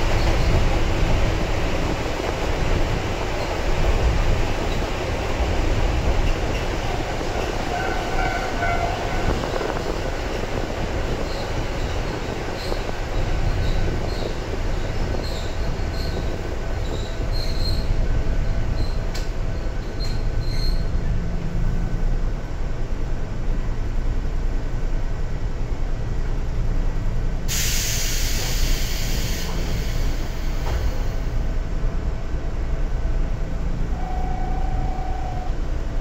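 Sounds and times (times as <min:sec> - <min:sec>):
train wheels and motors rumbling: 0:00.0 - 0:36.0
short high squeaks: 0:20.0 - 0:20.9
hiss: 0:27.5 - 0:31.4.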